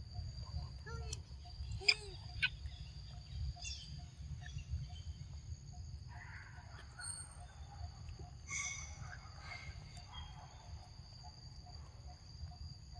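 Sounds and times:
bird chirps: 0:00.5 - 0:05.2, 0:06.2 - 0:10.6.

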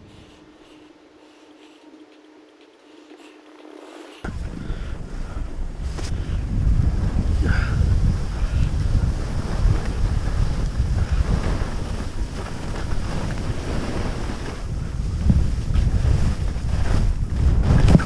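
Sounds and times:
wind buffeting microphone: 0:04.2 - 0:18.0.

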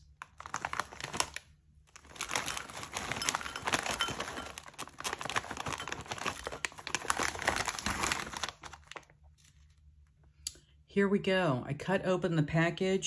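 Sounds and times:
plastic snack bag crinkling: 0:00.0 - 0:10.3
snacks clattering into bowl: 0:02.0 - 0:08.9.

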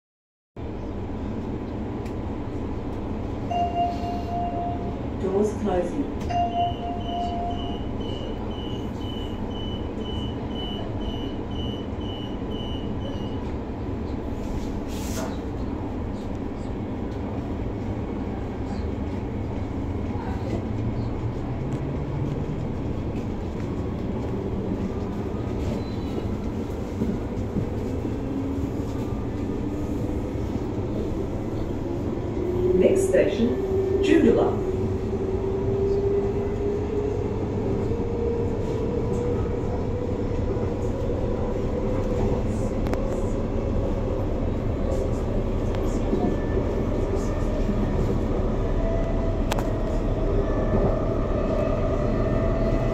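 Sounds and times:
train carriage rumbling: 0:00.6 - 0:52.9
door-closing warning beeps: 0:06.3 - 0:13.4.

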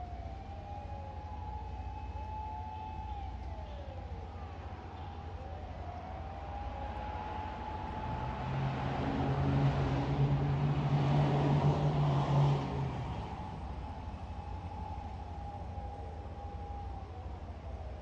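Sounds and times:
distant fire engine sirens: 0:00.0 - 0:18.0
car passing: 0:06.8 - 0:15.4.

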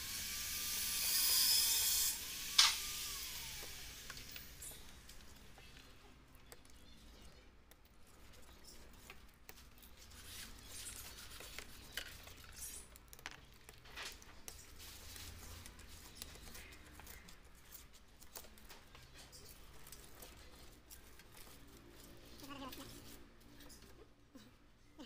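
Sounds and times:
scratching and scraping on glass: 0:04.4 - 0:24.2.

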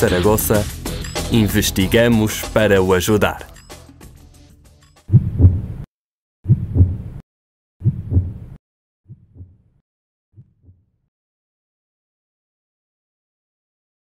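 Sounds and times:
heartbeat thumps: 0:05.1 - 0:05.8, 0:06.5 - 0:07.1, 0:07.8 - 0:08.5, 0:09.1 - 0:09.6.

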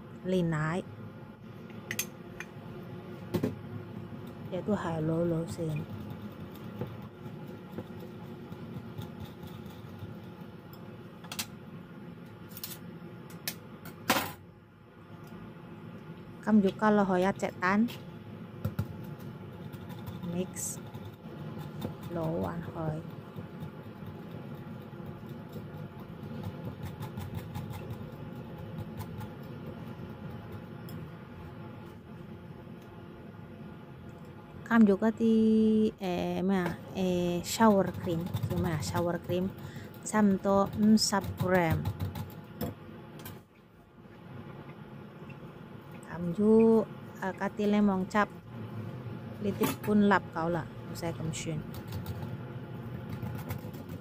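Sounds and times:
steady low hum: 0:00.0 - 0:54.0
whisk scraping glass bowl: 0:05.8 - 0:10.2, 0:19.1 - 0:29.5, 0:37.4 - 0:42.2.

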